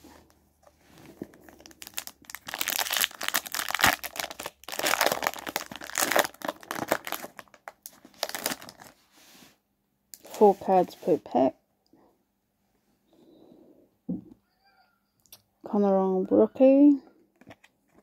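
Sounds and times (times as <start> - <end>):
foil wrapper tearing and crinkling: 1.3 - 9.0.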